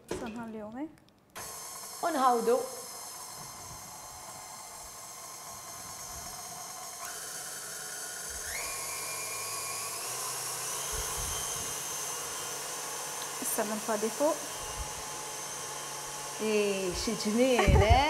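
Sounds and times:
stand mixer motor whine: 1.4s - 18.0s.

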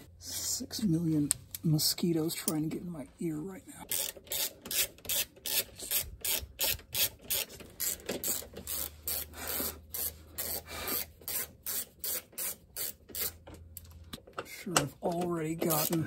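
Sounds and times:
hand ratchet clicking: 3.9s - 14.2s, 14.8s - 16.0s.

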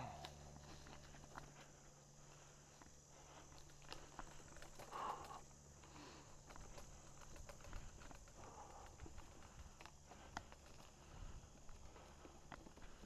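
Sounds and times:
mountain bike rattling on dirt trail: 3.5s - 13.0s.

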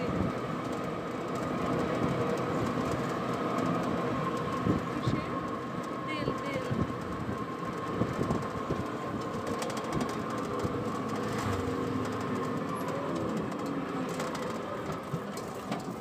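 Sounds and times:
vehicle engine and road rumble: 0.0s - 16.0s
wind rushing past window: 6.6s - 11.7s.

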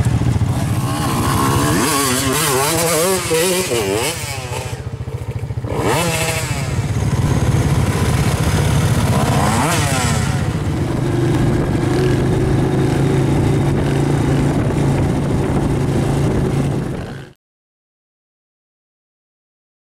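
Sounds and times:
atv engine droning: 0.0s - 17.4s
dirt bike engine revving: 0.0s - 17.4s.

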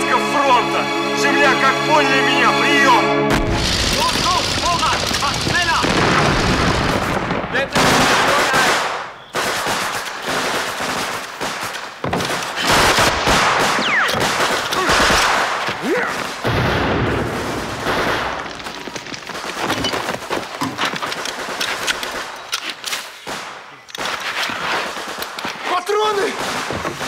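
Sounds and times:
rifle shots: 3.3s - 18.6s, 21.0s - 27.0s.

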